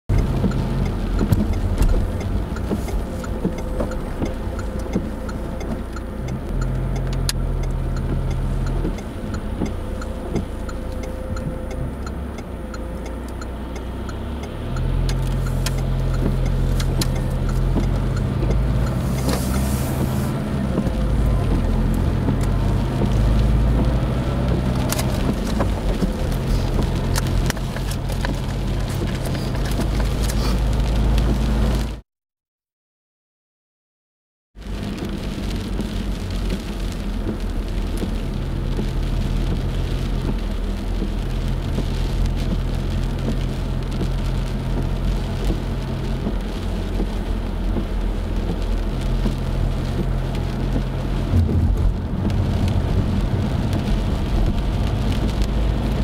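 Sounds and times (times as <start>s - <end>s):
engine and road rumble: 0.0s - 32.0s, 34.5s - 56.0s
light ticks: 0.1s - 31.5s, 34.9s - 51.0s
tyre hiss on wet road: 18.9s - 21.2s, 22.2s - 31.8s.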